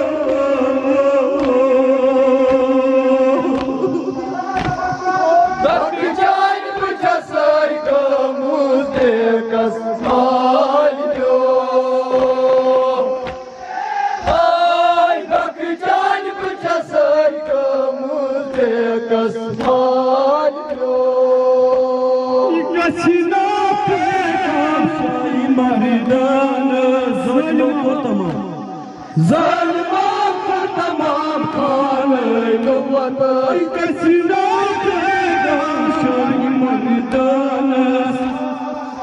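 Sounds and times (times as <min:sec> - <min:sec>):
men chanting lament: 0:00.0 - 0:39.0
hands slapping chests: 0:01.4 - 0:01.6, 0:02.4 - 0:02.7, 0:03.3 - 0:05.8, 0:10.0 - 0:10.3, 0:12.1 - 0:15.5, 0:18.5 - 0:18.8, 0:19.5 - 0:20.0.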